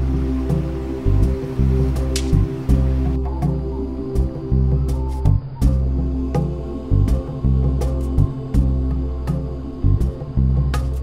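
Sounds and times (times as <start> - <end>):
held low notes: 0.0 - 11.0
light percussive ticks: 2.1 - 2.8.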